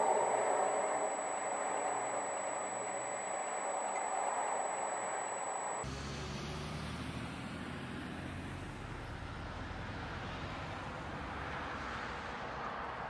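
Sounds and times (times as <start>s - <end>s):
car engine and road noise: 3.6s - 13.0s
bus running: 5.8s - 13.0s.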